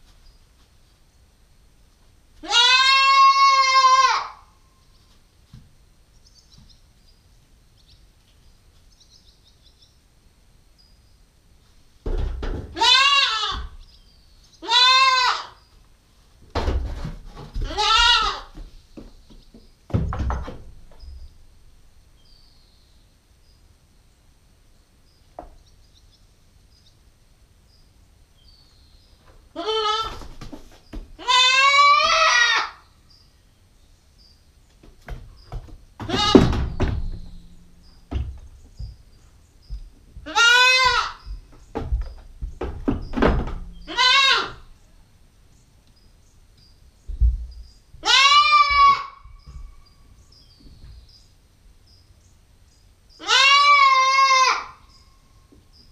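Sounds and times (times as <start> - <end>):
goat kid bleating: 2.4 - 4.5, 12.7 - 13.8, 14.6 - 15.6, 17.6 - 18.6, 29.5 - 30.4, 31.2 - 32.8, 36.0 - 36.6, 40.2 - 41.4, 43.8 - 44.7, 48.0 - 49.3, 53.2 - 54.8
thumps and knocks: 12.0 - 12.8, 16.5 - 17.9, 18.5 - 21.2, 34.8 - 39.1, 39.7 - 43.9.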